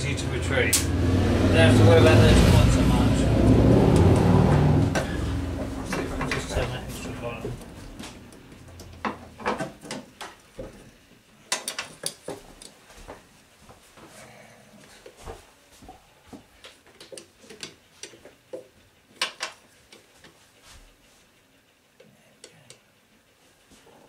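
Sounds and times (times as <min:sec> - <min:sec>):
clicks taps and knocks of a tool: 0:16.6 - 0:20.4.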